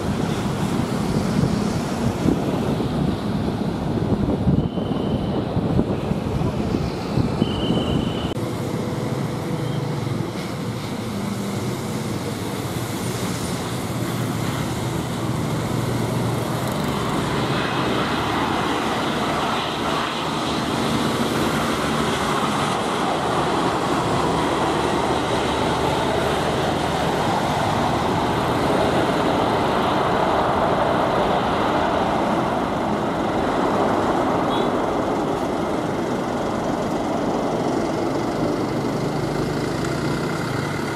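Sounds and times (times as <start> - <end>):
jet engine noise: 0.0 - 40.9.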